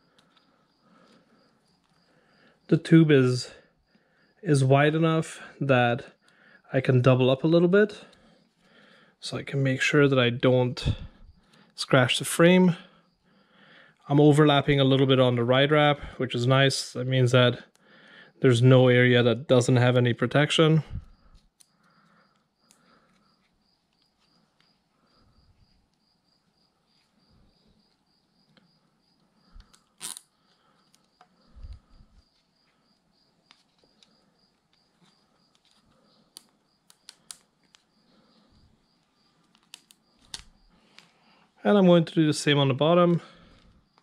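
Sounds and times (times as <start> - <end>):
zip tie clicking: 29.5 - 38.0, 39.4 - 41.1.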